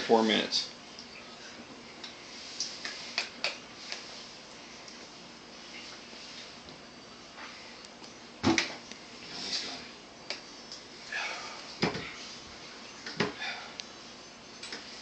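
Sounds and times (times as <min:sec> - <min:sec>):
man breathing and sniffing: 0:10.9 - 0:14.2.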